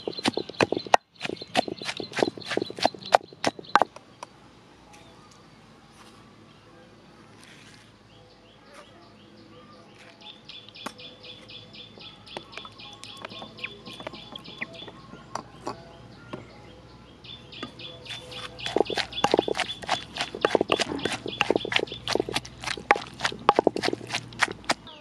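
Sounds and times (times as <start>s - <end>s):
pestle thudding in mortar: 0.0s - 3.9s, 13.2s - 15.0s, 18.1s - 24.9s
rapid high chirping: 0.0s - 3.9s, 12.1s - 15.1s, 17.4s - 24.9s.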